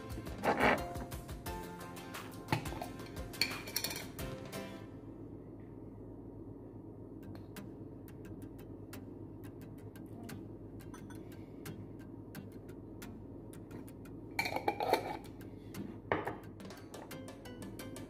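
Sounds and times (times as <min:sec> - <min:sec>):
spoon clatter: 0:02.5 - 0:04.2, 0:14.4 - 0:15.2.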